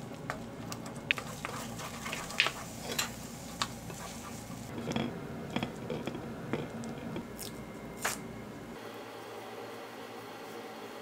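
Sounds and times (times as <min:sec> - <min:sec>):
low steady hum: 0:00.0 - 0:08.9
wooden spoon scraping pan: 0:01.1 - 0:07.2.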